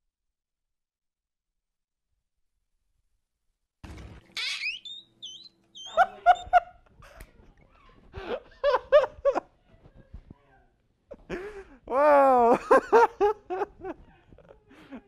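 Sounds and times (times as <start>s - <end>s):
man moaning cries: 11.8s - 12.8s
man yelping: 11.9s - 12.6s.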